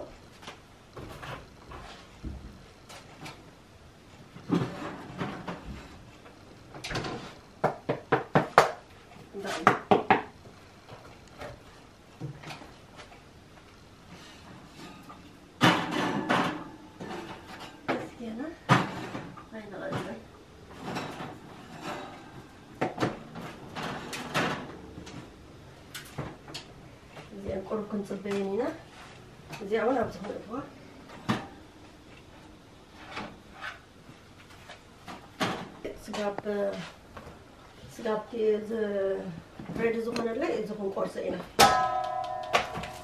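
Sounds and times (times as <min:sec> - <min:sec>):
objects knocking and clattering: 0:14.6 - 0:25.3, 0:41.5 - 0:43.0
kitchen knocks and bumps: 0:15.6 - 0:18.1, 0:41.6 - 0:43.0.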